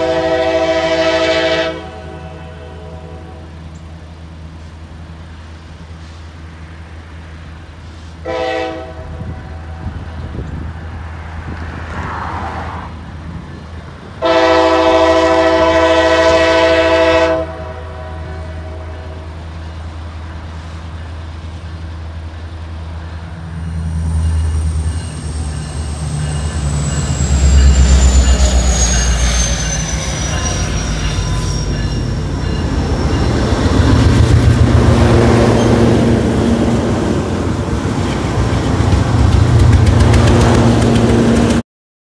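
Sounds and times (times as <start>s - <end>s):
freight locomotives passing: 0.0s - 41.6s
high whine sliding down: 24.0s - 37.6s.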